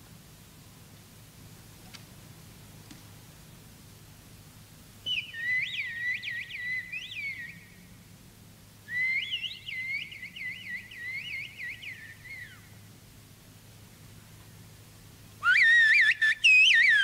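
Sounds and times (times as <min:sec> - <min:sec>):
man whistling chirping signal: 0:08.9 - 0:12.6, 0:15.4 - 0:17.0.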